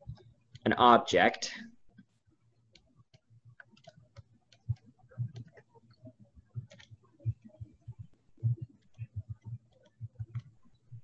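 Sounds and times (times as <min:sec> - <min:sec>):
computer mouse clicking: 0:02.7 - 0:10.8.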